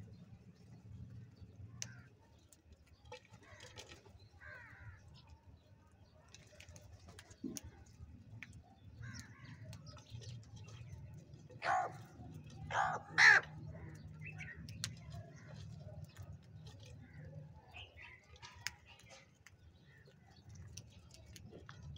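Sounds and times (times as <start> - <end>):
crows calling: 4.4 - 5.0, 11.6 - 12.0, 12.7 - 14.0.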